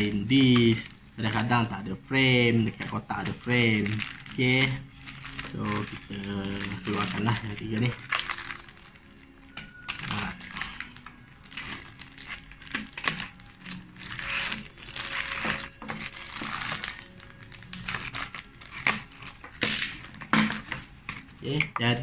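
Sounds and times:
plastic bags crinkling: 0:00.0 - 0:21.8
knife cutting plastic: 0:09.5 - 0:21.7.

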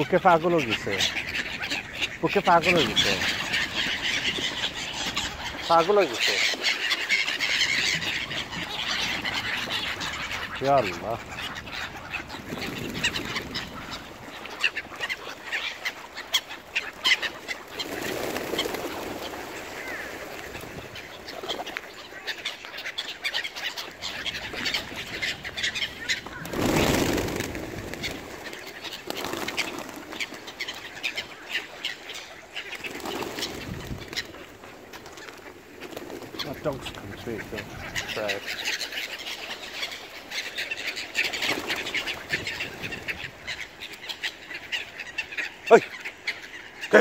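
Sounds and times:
birds calling and flapping: 0:00.0 - 0:47.0
ducks quacking: 0:00.0 - 0:47.0.

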